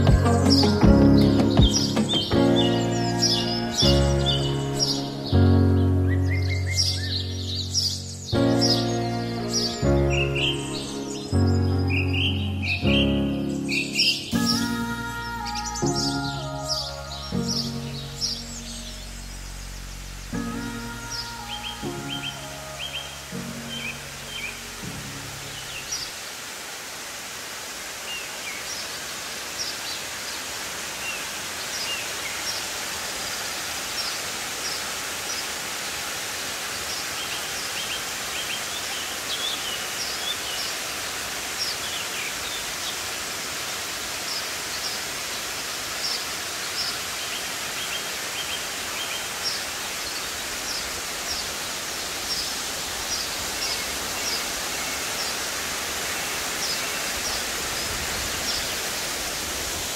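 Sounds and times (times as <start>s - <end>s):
birds chirping: 0.0s - 26.2s
waterfall rushing: 0.0s - 59.9s.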